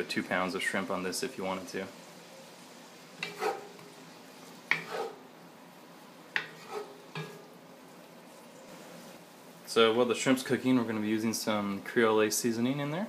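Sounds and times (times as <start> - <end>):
faint sizzle: 0.0 - 13.0
wooden spoon scraping a pot: 3.2 - 3.9, 4.6 - 5.2, 6.4 - 7.5.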